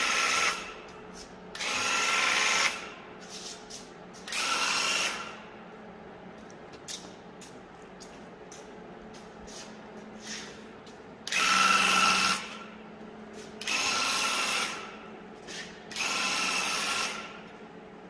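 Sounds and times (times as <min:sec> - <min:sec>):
paint sprayer whining bursts: 0:11.3 - 0:12.6, 0:13.6 - 0:14.9, 0:15.5 - 0:17.4.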